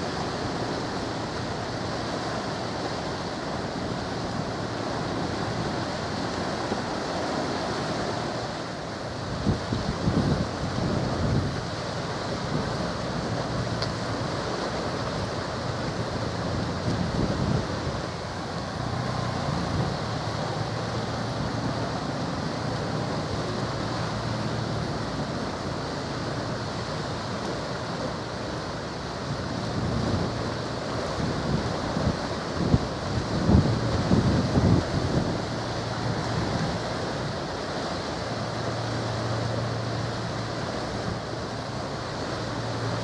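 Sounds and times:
sea noise: 0.0s - 43.0s
wind buffeting microphone: 9.1s - 27.6s, 29.1s - 38.9s.

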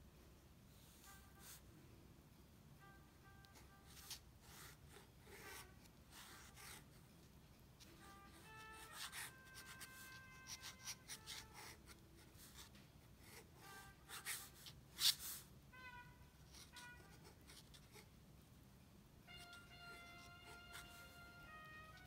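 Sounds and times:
pen nib scratching paper: 3.8s - 15.5s, 16.5s - 18.1s.

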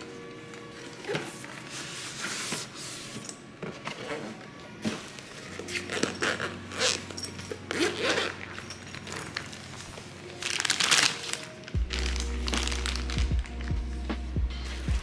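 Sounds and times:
background music: 0.0s - 15.0s
plastic bag crinkling: 9.0s - 13.6s.

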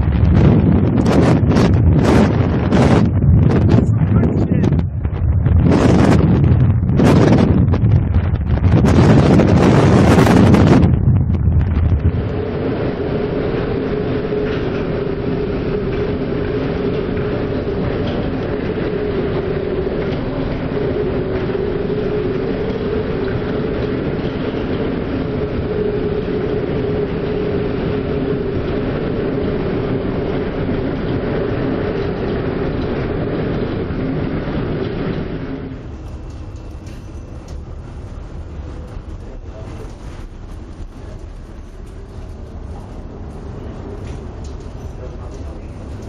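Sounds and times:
steady droning hum: 0.0s - 46.0s
storm wind and heavy seas: 0.0s - 46.0s.

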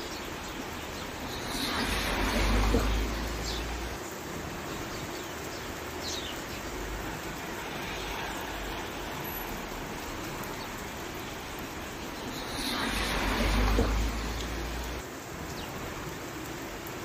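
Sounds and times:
rain falling: 0.0s - 17.0s.

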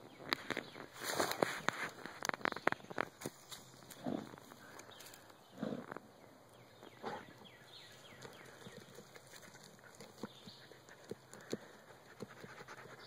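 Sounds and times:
paws scratching dirt: 0.0s - 13.0s
dogs digging in soil: 0.3s - 6.0s, 6.9s - 13.0s.

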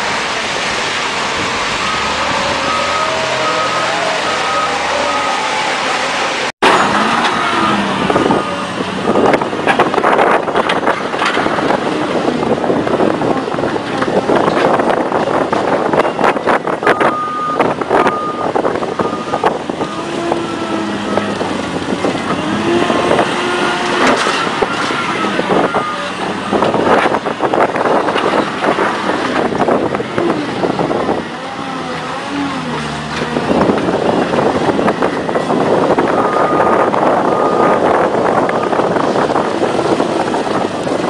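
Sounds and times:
diesel engine under load: 0.0s - 41.0s
short beeps: 16.8s - 19.5s, 36.1s - 37.8s.

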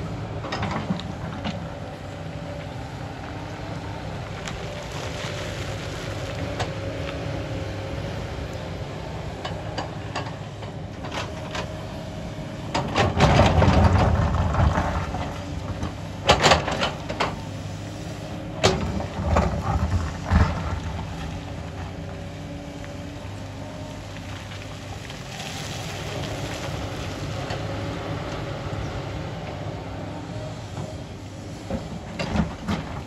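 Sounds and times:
excavator diesel engine running: 0.0s - 33.0s
grinding rush of tumbling stone: 13.0s - 17.0s, 18.7s - 27.7s.

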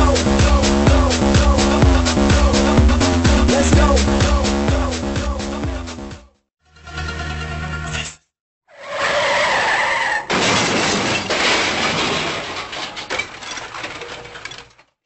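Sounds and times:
tyre screech: 8.7s - 10.3s
skidding and crashing: 8.8s - 15.0s.

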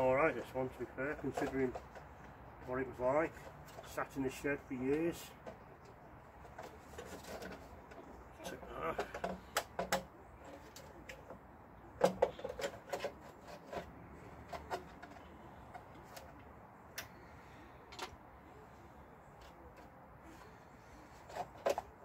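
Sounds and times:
plastic panel clicks and knocks: 9.0s - 10.2s, 12.0s - 13.2s.

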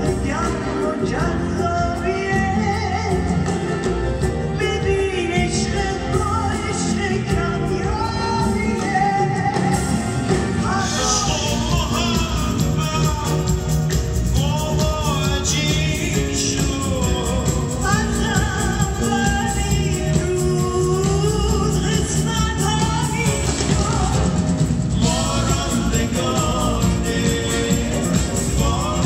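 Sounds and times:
woman singing: 0.0s - 3.7s, 4.5s - 12.2s, 14.4s - 29.0s
live band music: 0.0s - 29.0s
man singing: 0.0s - 29.0s.

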